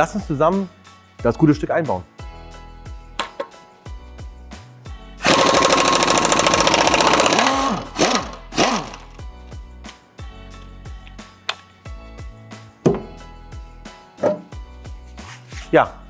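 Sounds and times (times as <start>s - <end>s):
background music with a beat: 0.0s - 5.9s, 7.1s - 16.0s
pneumatic impact wrench rattling: 5.2s - 9.2s.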